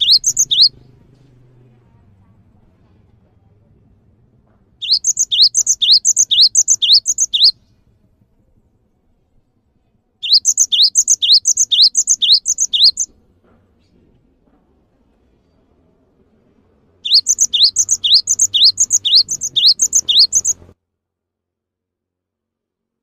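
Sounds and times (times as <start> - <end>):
bird singing whistled phrase: 0.0 - 0.7, 4.8 - 7.6, 10.2 - 13.1, 17.1 - 20.6.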